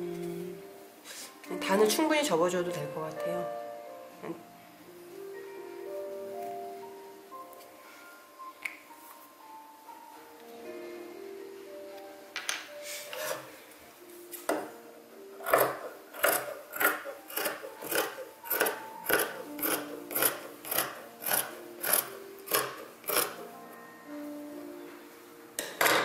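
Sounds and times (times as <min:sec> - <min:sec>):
fabric shears snipping: 0:15.4 - 0:23.4.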